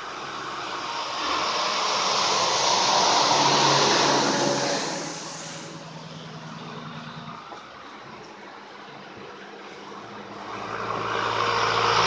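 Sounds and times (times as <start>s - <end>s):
tyre hiss on wet road: 0.0s - 6.5s
faint low engine hum: 0.0s - 12.0s.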